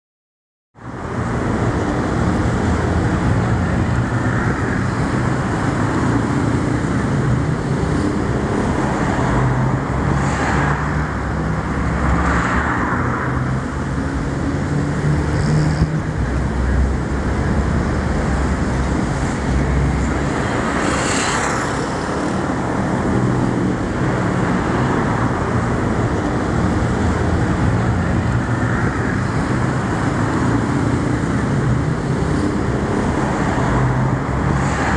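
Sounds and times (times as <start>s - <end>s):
road traffic: 0.8s - 34.9s
vehicles passing by loudly: 0.8s - 34.9s.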